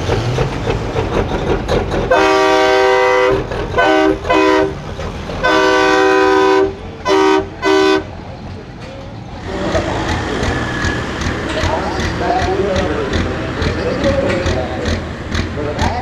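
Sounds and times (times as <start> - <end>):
diesel engine rumbling: 0.0 - 16.0
truck air horn blasts: 2.1 - 4.8, 5.4 - 8.1.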